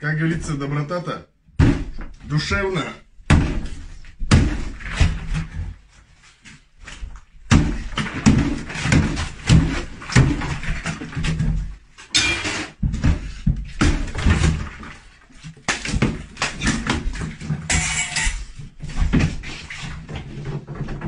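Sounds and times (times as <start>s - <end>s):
thumps and knocks: 1.5s - 5.9s, 6.8s - 21.0s.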